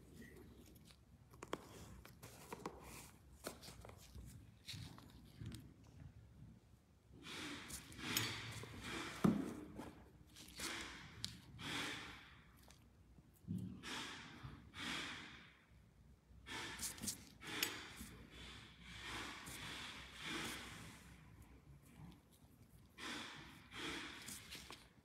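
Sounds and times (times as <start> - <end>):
person breathing: 7.2 - 9.8, 10.5 - 12.7, 13.8 - 15.7, 16.5 - 22.3, 22.9 - 25.0.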